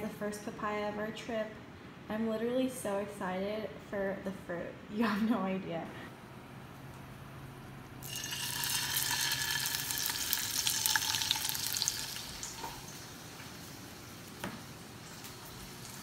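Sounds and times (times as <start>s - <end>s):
food sizzling in a frying pan: 8.0s - 16.0s.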